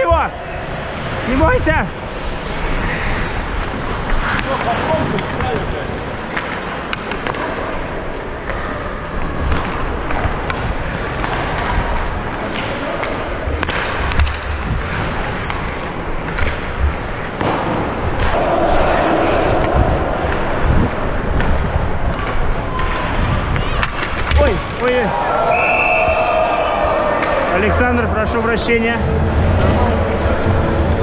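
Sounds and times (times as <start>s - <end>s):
sticks and puck clacking: 2.4s - 25.3s, 27.1s - 27.9s
low thumps: 25.9s - 31.0s.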